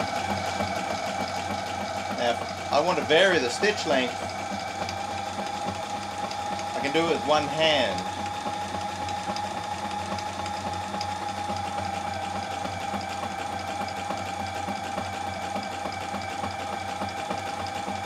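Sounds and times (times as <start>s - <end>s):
needle mechanism ticking: 0.0s - 11.7s
sewing machine motor whine: 0.0s - 18.0s.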